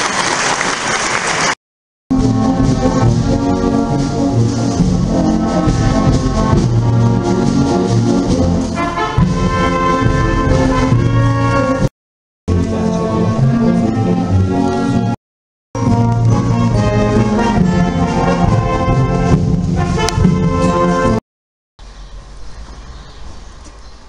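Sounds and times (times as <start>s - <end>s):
trumpets and trombones: 2.1s - 11.9s, 12.5s - 15.2s, 15.8s - 21.2s
wind band playing a march: 2.1s - 11.9s, 12.5s - 15.2s, 15.8s - 21.2s.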